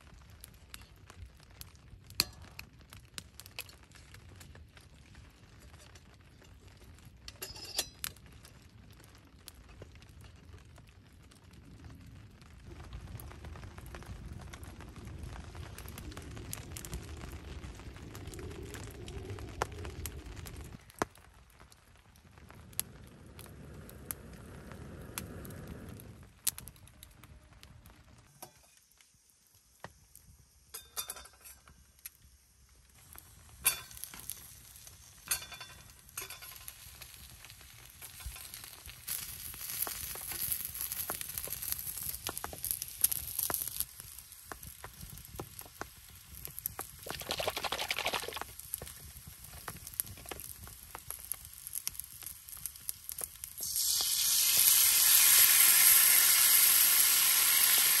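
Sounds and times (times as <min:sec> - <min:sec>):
food sizzling in frying: 0:33.0 - 0:58.0.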